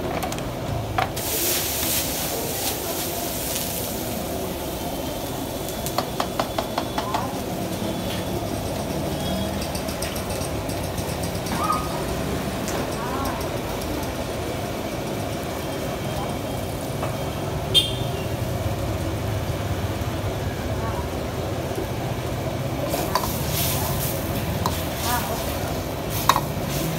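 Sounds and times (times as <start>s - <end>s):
gas burner rumble: 0.0s - 26.9s
gravy sizzling in a wok: 0.7s - 11.1s, 11.9s - 26.9s
sauce poured hissing: 1.2s - 5.7s.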